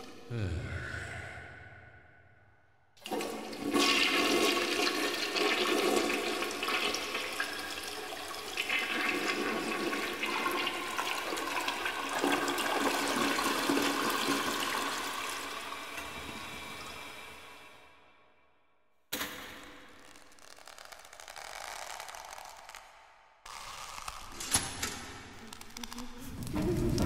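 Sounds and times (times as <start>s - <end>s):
toilet flushing: 3.0s - 17.9s.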